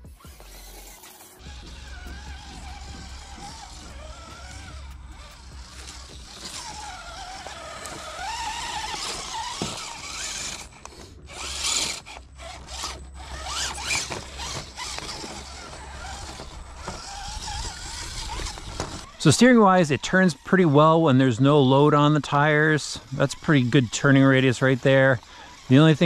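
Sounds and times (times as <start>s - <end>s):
electric motor and gears whining: 0.0s - 26.0s
tyres scrabbling on wet rock: 2.2s - 19.2s.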